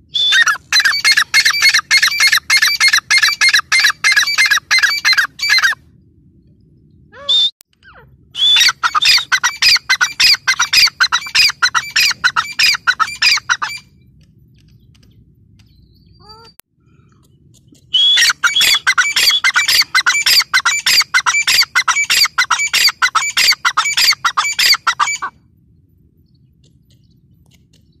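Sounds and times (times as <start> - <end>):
francolin calling: 7.9 - 13.9, 18.0 - 25.3.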